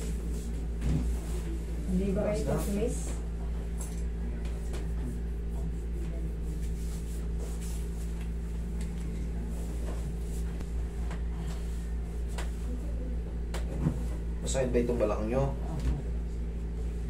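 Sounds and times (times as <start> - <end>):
steady low hum: 0.0 - 17.0
faint taps and rustles: 9.8 - 12.7.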